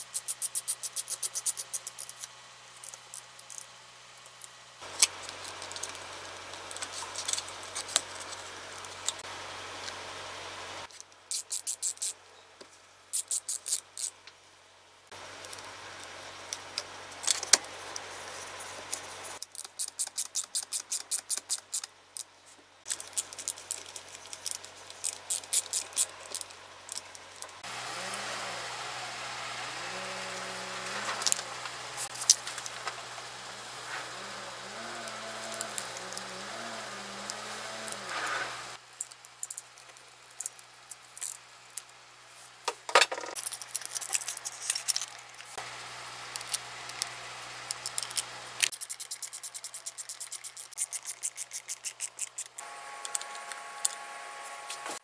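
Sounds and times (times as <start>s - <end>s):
screwdriver clicking on screws: 22.9s - 27.2s.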